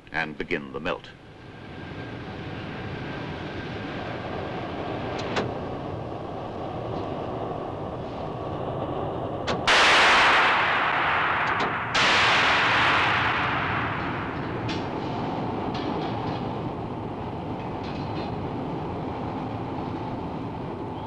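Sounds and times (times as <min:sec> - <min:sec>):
electric arc furnace crackling: 0:00.8 - 0:21.0
sharp cracks: 0:09.4 - 0:16.8.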